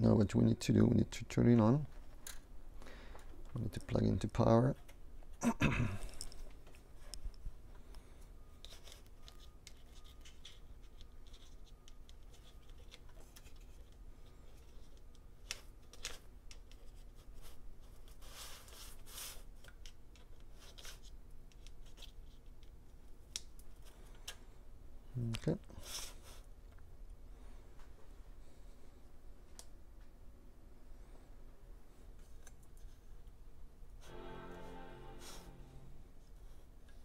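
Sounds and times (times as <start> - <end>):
laptop handling scrapes and ticks: 8.6 - 22.6.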